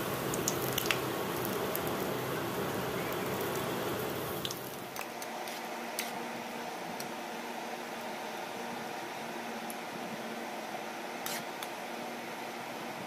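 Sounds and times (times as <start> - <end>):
batter sizzling in hot oil: 0.0 - 6.0
oil popping: 0.2 - 2.1.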